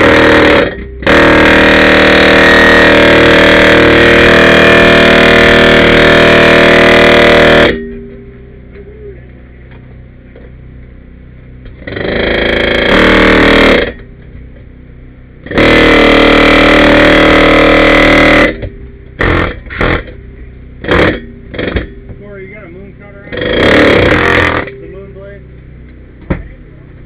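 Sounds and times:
reciprocating saw cutting steel: 0.0s - 7.8s, 11.8s - 14.0s, 15.4s - 20.1s, 20.8s - 21.9s, 23.2s - 24.8s.

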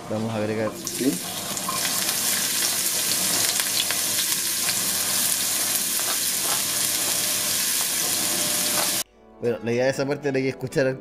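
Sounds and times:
onion sizzling in oil: 0.1s - 9.0s
wooden spoon scraping cutting board: 6.0s - 7.3s, 8.0s - 9.0s.

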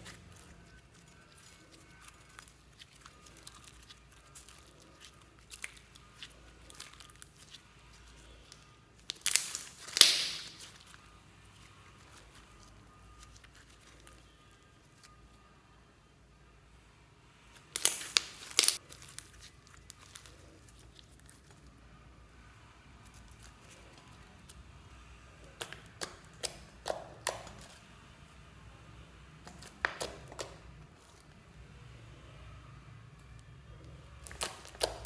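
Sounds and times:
slime crackling pops: 8.5s - 10.8s, 17.7s - 18.8s, 34.2s - 35.0s.

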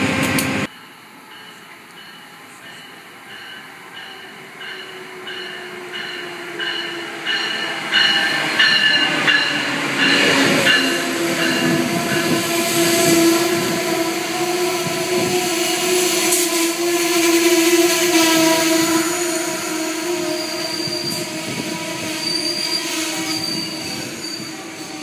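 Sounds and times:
train coaches rumbling past: 0.0s - 25.0s
locomotive bell ringing: 0.7s - 13.8s.

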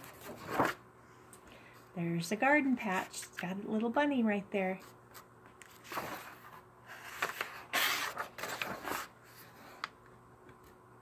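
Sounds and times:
paper page rustling: 0.0s - 0.8s, 4.8s - 9.9s.

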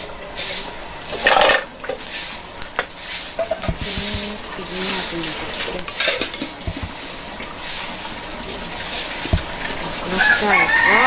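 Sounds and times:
food sizzling: 0.0s - 11.0s
ladle knocking on pan: 3.4s - 4.4s, 5.9s - 7.0s
metal ladle scraping a wok: 4.6s - 7.9s
rooster crowing: 10.1s - 11.0s.

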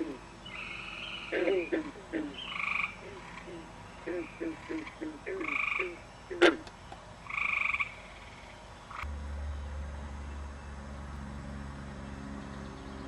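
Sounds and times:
frog croaking: 0.0s - 6.6s, 7.3s - 9.0s.

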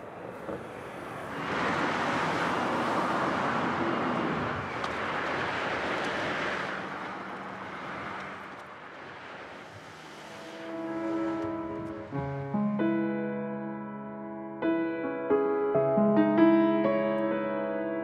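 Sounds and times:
passing cars: 0.0s - 13.1s.

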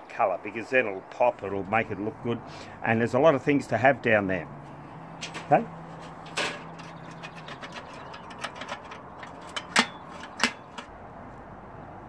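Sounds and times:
metal parts clicking and knocking: 6.2s - 10.9s.

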